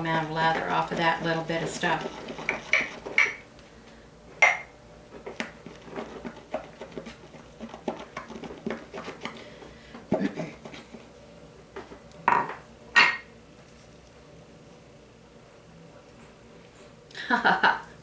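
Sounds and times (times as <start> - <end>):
shaving brush tapping a bowl: 0.4 - 3.4.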